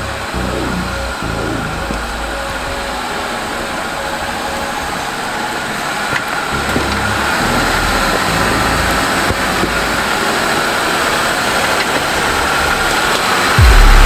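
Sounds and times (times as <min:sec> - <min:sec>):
engine running at low revs: 0:00.0 - 0:03.2, 0:06.5 - 0:10.2.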